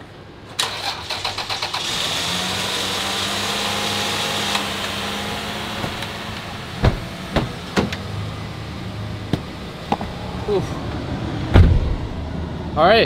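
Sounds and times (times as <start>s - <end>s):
car engine running: 1.8s - 12.4s
sharp knocks: 6.8s - 8.0s.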